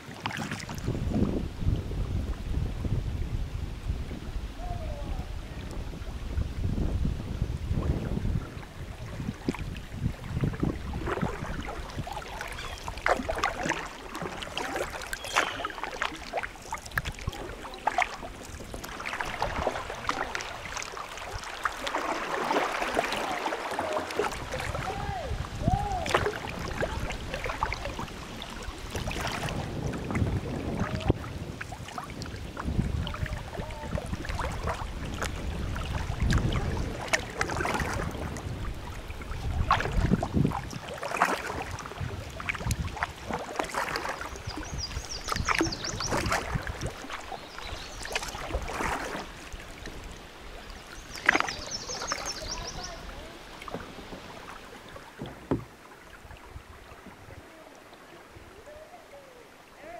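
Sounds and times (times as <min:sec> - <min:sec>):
wind buffeting microphone: 0:00.0 - 0:15.3, 0:23.6 - 0:50.2
paddle splashes: 0:00.0 - 0:59.9
water lapping at hull: 0:00.0 - 0:59.9.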